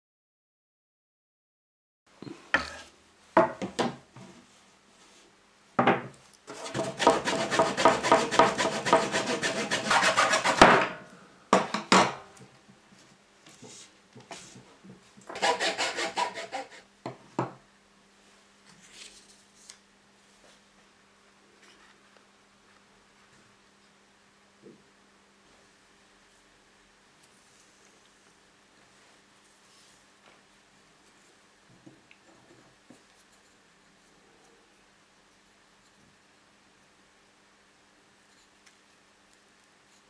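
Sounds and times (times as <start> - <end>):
hacksaw cutting wooden stick: 6.5 - 10.8, 15.3 - 16.8.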